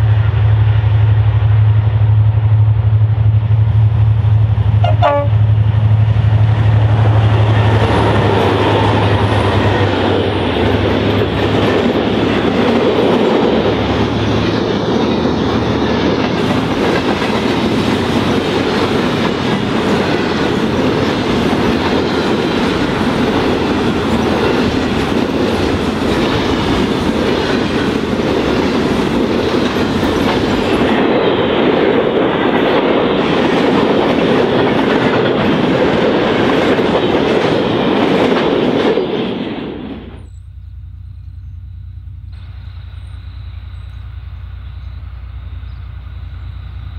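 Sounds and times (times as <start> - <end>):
freight train rumbling past: 0.0 - 46.9
wheels clattering over rails: 6.0 - 40.4.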